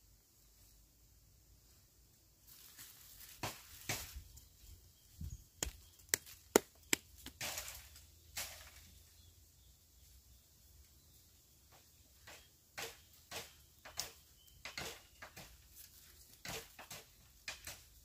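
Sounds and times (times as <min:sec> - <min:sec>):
hands patting mud: 0:05.6 - 0:07.4.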